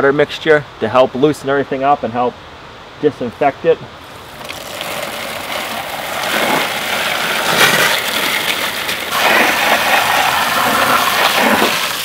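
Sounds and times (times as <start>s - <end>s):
hose nozzle spraying water: 4.1s - 12.0s.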